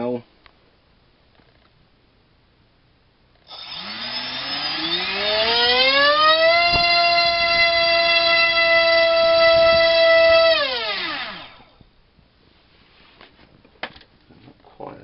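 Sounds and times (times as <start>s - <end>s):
electric motor propeller whine: 3.5s - 11.8s.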